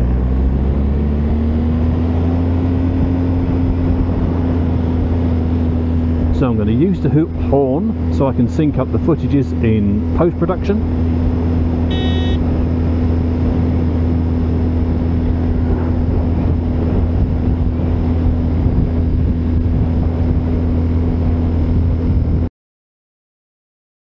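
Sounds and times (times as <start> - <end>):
motorcycle engine running: 10.8 - 20.8.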